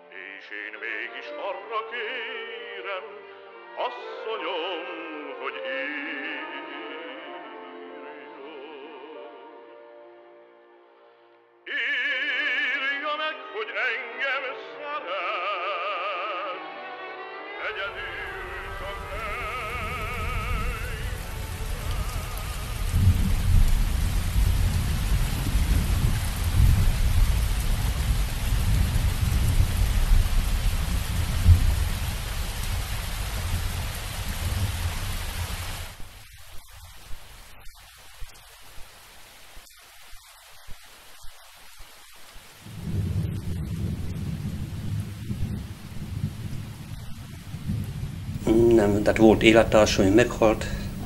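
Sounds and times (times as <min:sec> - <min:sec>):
rain on pavement and puddles: 0:17.8 - 0:51.0
water drips: 0:19.1 - 0:35.3.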